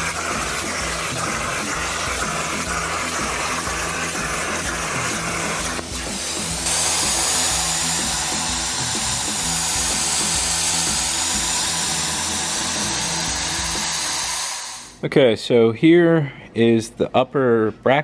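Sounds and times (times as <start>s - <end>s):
music with repeating bass line: 0.0s - 14.0s
loud steady hiss: 0.0s - 15.0s.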